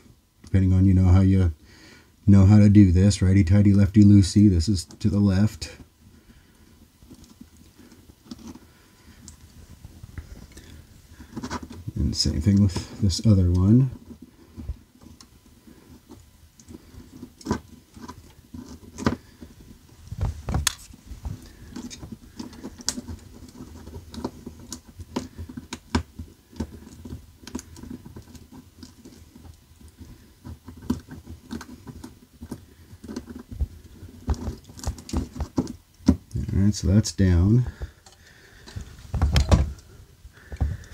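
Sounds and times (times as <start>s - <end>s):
faint steady hum: 0.0s - 40.9s
fingers twisting wire nut: 14.9s - 36.4s.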